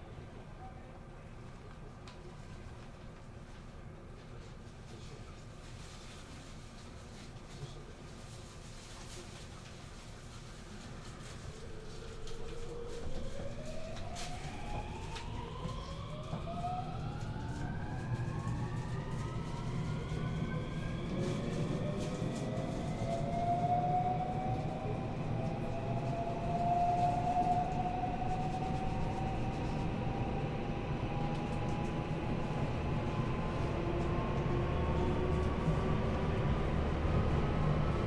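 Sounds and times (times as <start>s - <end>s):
wheels rumbling on rail: 8.3s - 38.0s.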